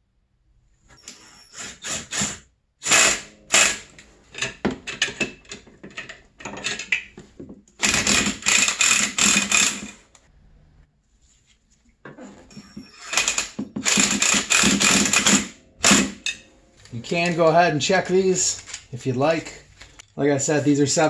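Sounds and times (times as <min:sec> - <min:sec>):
hand tools clicking and rattling: 0:01.8 - 0:10.0, 0:12.5 - 0:17.5, 0:18.4 - 0:20.1.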